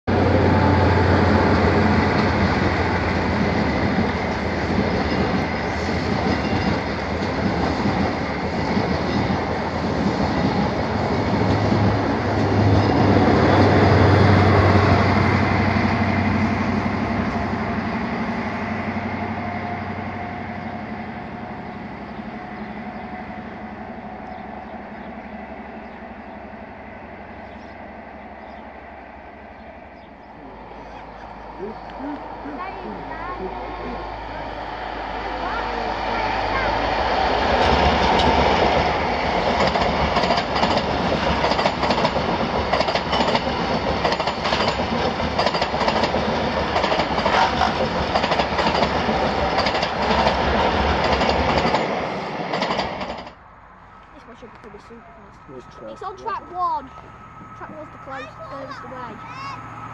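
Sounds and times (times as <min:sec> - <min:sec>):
train engine low hum: 0:00.0 - 0:59.9
train wheels on rails: 0:00.1 - 0:59.9.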